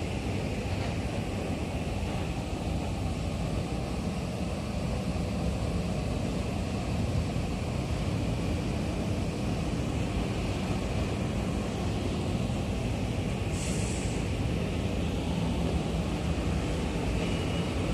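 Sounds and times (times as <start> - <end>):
electric train rumbling: 0.0 - 17.9
sharp air hiss: 13.3 - 15.4.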